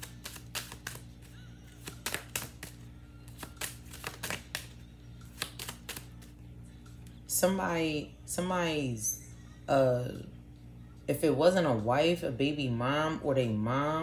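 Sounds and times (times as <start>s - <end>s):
cards snapping while shuffled: 0.0s - 6.3s
faint background music: 0.0s - 14.0s.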